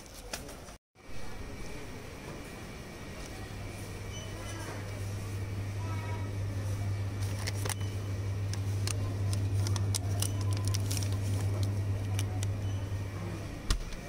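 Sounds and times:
steady low hum: 1.0s - 14.0s
wrappers crinkling: 8.5s - 12.5s.

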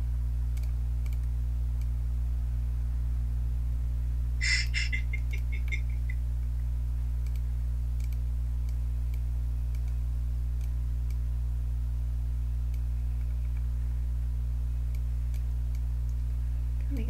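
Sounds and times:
low electrical hum: 0.0s - 17.0s
computer mouse clicks: 0.6s - 1.9s, 7.2s - 7.4s, 8.0s - 10.0s
high chirping rattle: 4.4s - 6.2s.

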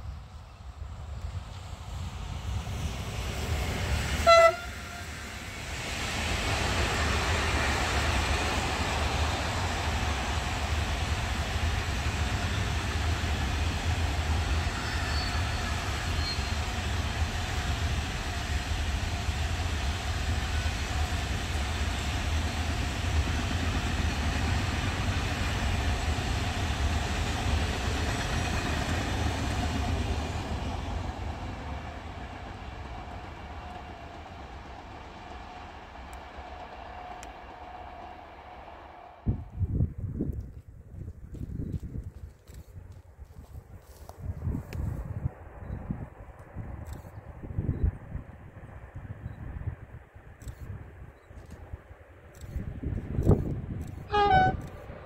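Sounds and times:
freight train rumbling on rails: 0.0s - 42.2s, 42.8s - 55.0s
train horn blast: 4.2s - 5.2s, 54.1s - 54.8s.

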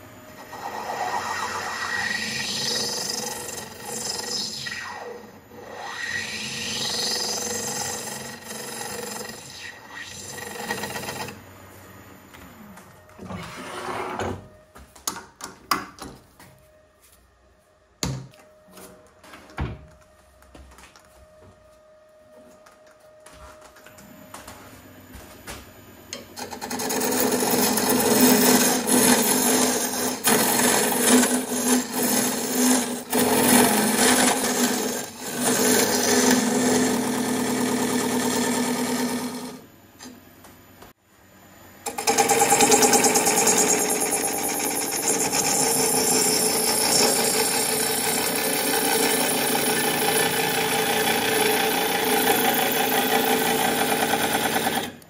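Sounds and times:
lathe tool scraping wood: 0.4s - 11.4s, 26.4s - 39.6s, 41.9s - 54.9s.

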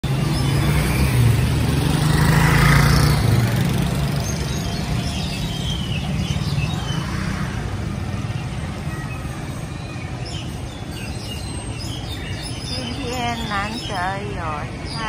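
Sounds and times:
vehicle engine passing: 0.0s - 8.8s
small birds chirping: 0.1s - 15.0s.

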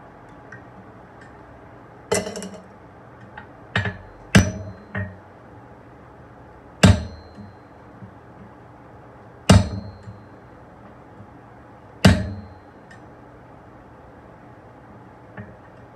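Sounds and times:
hammer blows on anvil: 2.1s - 2.7s, 3.8s - 5.2s, 6.8s - 7.6s, 9.5s - 10.2s, 12.0s - 12.7s
high metallic ring: 6.8s - 7.8s, 12.2s - 12.8s.

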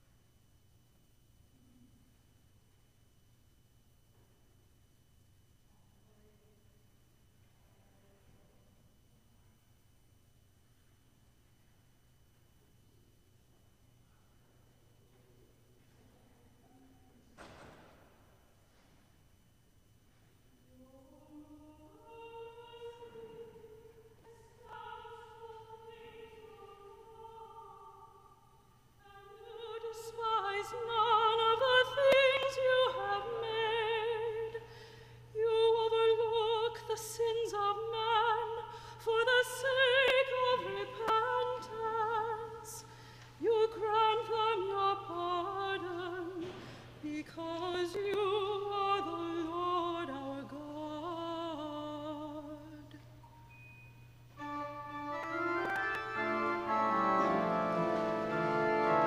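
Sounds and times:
woman singing with vibrato: 20.7s - 28.4s, 29.0s - 34.7s, 35.4s - 53.0s
pipe organ playing softly: 54.3s - 59.0s.

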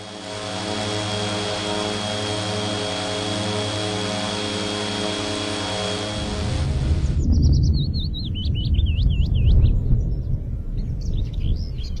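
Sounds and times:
drone propellers buzzing: 0.0s - 8.2s.

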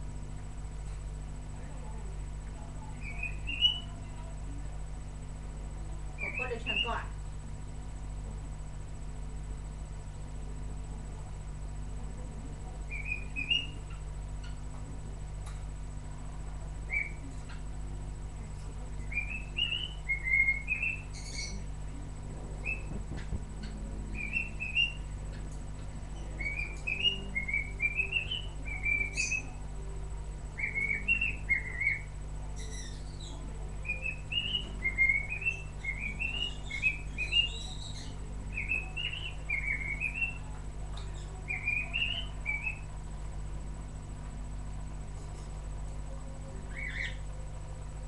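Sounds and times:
steady low hum: 0.0s - 48.0s
parrot chirping: 3.0s - 4.0s, 6.2s - 7.0s, 12.9s - 14.6s, 16.9s - 17.3s, 19.0s - 21.7s, 22.6s - 23.0s, 23.6s - 25.1s, 26.1s - 29.6s, 30.6s - 40.4s, 41.1s - 42.8s, 46.7s - 47.2s.

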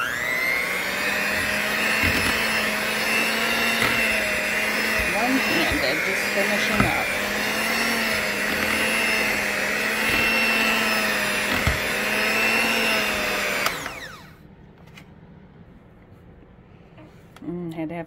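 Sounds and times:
electric hand mixer running: 0.0s - 14.4s.

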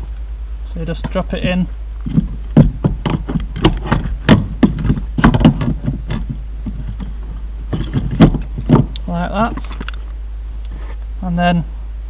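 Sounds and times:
seat belt retractor clicking and knocking: 2.1s - 10.0s.

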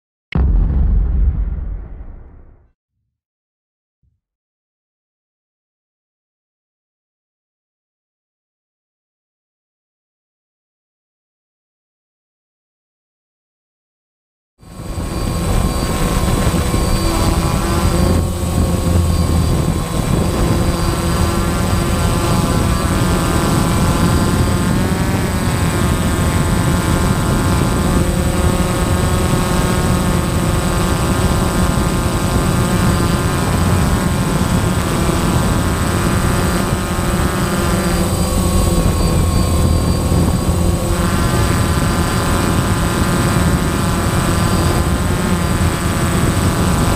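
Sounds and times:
quadcopter motors whining: 14.6s - 46.9s
steady high whistle: 37.9s - 41.0s.

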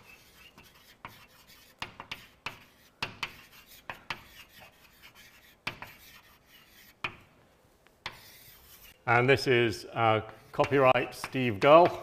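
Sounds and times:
writing on a board: 0.0s - 7.2s, 8.0s - 9.0s.

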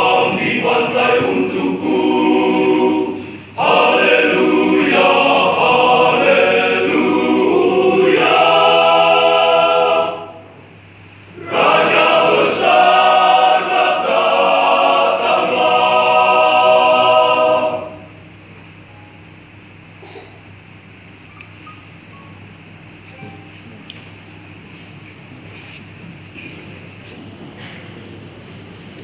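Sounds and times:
men's choir singing: 0.0s - 10.7s, 11.3s - 18.2s.

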